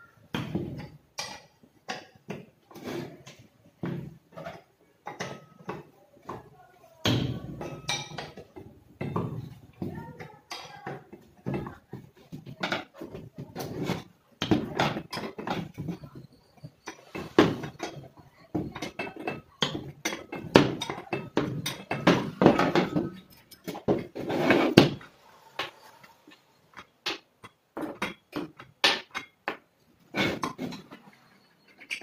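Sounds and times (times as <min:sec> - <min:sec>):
metallic clinks and scrapes: 0:14.8 - 0:26.9.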